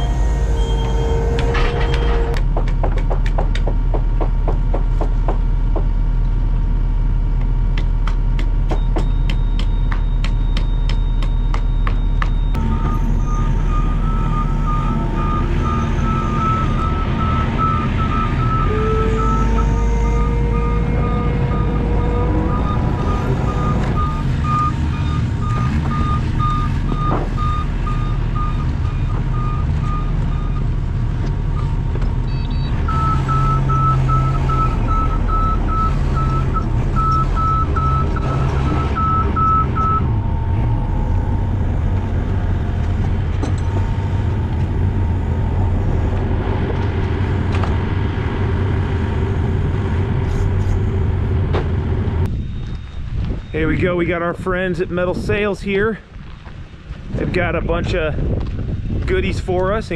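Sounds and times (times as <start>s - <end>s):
skid loader engine running: 0.0s - 53.5s
warning alarm beeping: 8.7s - 30.7s, 31.5s - 41.8s.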